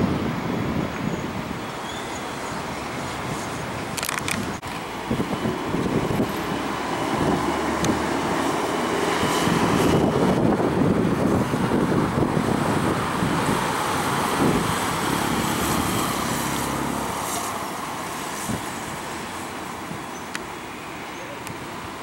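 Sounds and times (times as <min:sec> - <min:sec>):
jet engines rumbling: 0:00.0 - 0:22.0.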